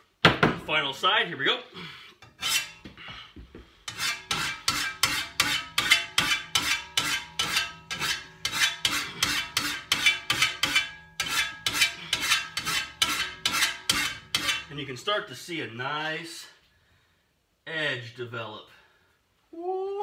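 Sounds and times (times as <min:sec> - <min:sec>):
hand file rasping on metal blade: 0:02.2 - 0:02.8, 0:03.9 - 0:14.7.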